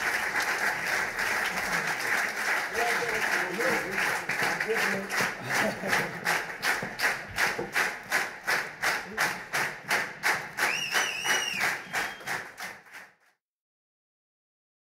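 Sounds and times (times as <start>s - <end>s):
audience clapping in rhythm: 0.0s - 13.4s
person whistling: 10.7s - 12.4s.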